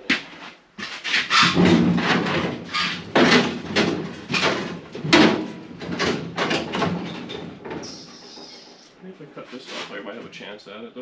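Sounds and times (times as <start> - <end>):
sheet metal clunking and scraping: 0.9 - 8.8.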